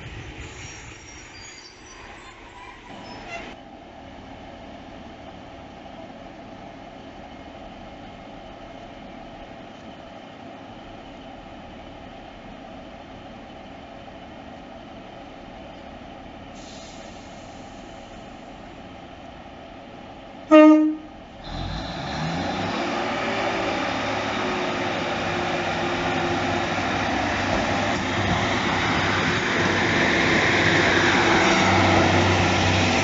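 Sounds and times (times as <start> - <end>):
diesel train engine: 0.0 - 33.0
train horn toot: 20.5 - 21.1.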